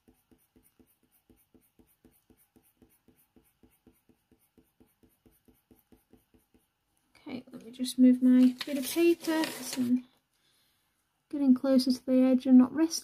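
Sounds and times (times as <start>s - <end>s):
pencil stroking on paper: 0.0s - 6.9s, 8.2s - 10.0s.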